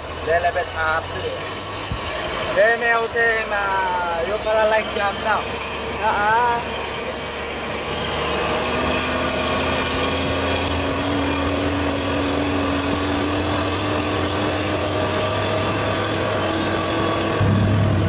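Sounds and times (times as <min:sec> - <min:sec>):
tyre and road noise: 0:00.0 - 0:18.0
vehicle engine humming: 0:00.0 - 0:18.0.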